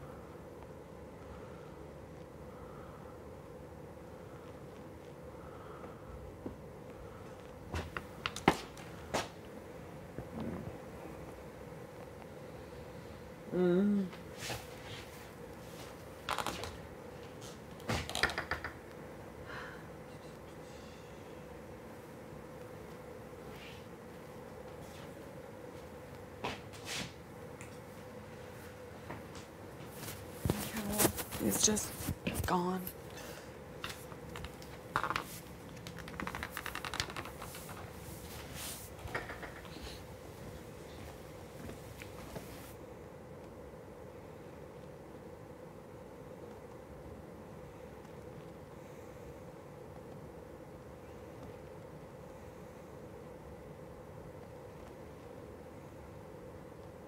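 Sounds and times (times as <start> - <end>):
faint electrical hum: 0.0 - 57.0
rustles of people moving: 22.6 - 42.8
rustling and rapid clicking: 33.8 - 37.9.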